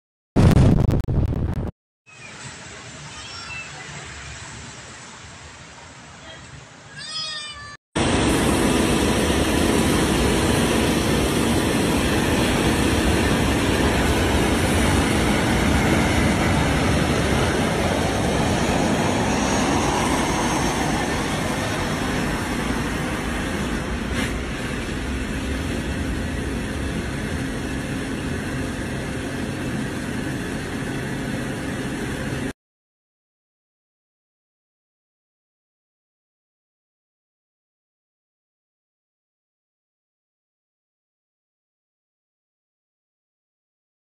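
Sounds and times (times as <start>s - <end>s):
jet engine roar: 8.0s - 32.5s.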